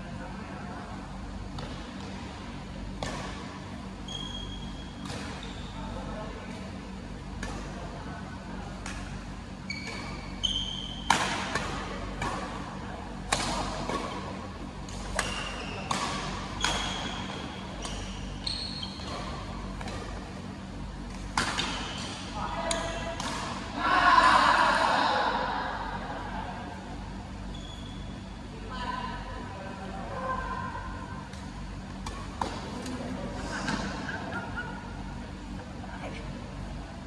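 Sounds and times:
shoes squeaking on court: 4.0s - 5.8s, 9.6s - 11.1s, 15.0s - 20.2s, 27.4s - 28.2s.

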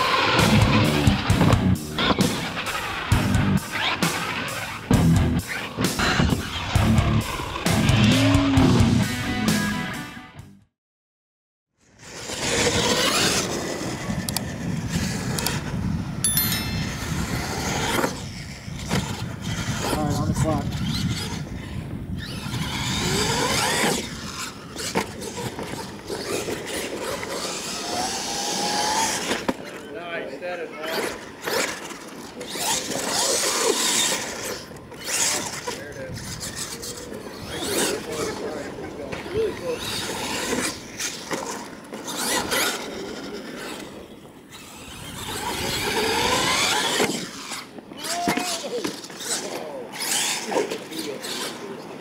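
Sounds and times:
toy truck motor whining: 16.4s - 29.8s, 30.9s - 51.8s.

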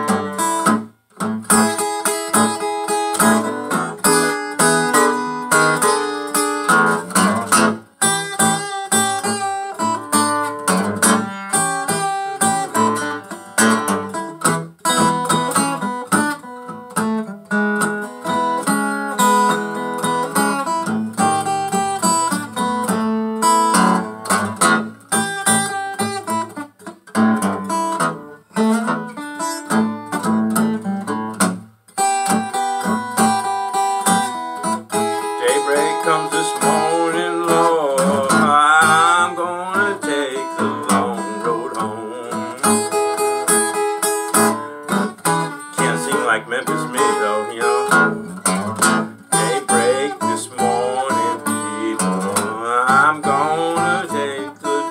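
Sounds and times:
acoustic guitar blues playing: 0.0s - 54.9s.

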